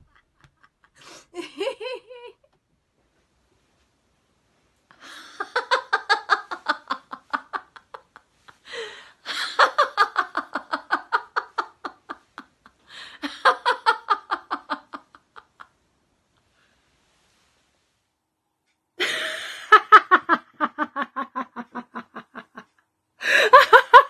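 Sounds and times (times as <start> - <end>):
woman laughing heartily: 0.0 - 2.5, 4.9 - 15.7, 19.0 - 24.0.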